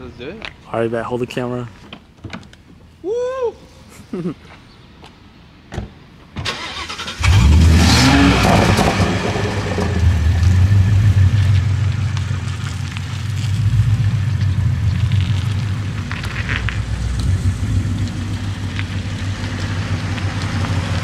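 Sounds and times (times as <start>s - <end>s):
car engine cranking: 6.4s - 21.0s
car engine revving and idling: 6.8s - 21.0s.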